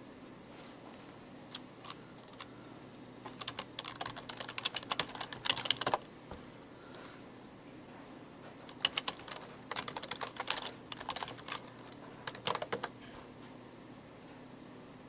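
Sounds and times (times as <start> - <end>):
computer keyboard typing: 1.5 - 2.5, 3.2 - 6.0, 8.6 - 13.0.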